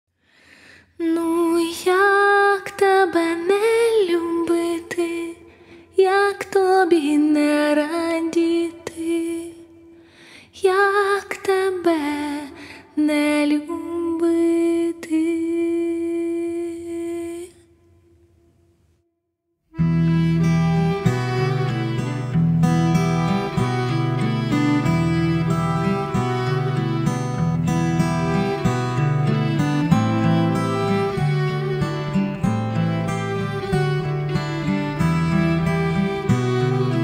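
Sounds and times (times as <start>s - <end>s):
woman singing with vibrato: 1.0s - 9.8s, 10.6s - 17.6s.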